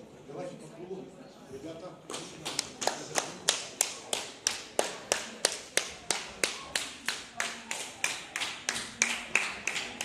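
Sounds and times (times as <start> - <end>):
hands clapping: 2.1 - 10.0.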